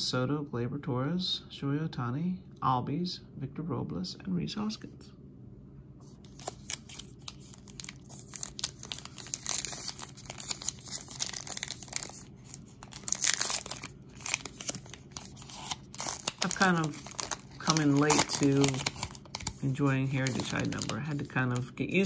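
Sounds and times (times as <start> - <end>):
foil wrapper crinkling and tearing: 6.2 - 22.0.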